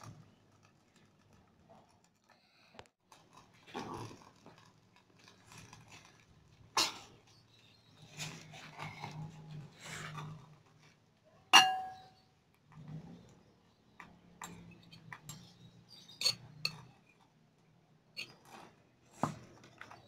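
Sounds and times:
spoon clinking on ceramic bowl: 11.6s - 12.2s
spoon tapping and scraping bowls: 11.6s - 13.0s, 14.0s - 17.3s, 18.2s - 18.6s.

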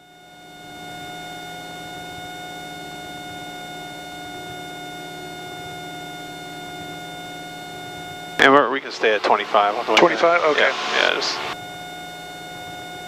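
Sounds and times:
steady whine: 0.7s - 13.0s
aircraft engine and propeller drone: 8.4s - 11.6s.

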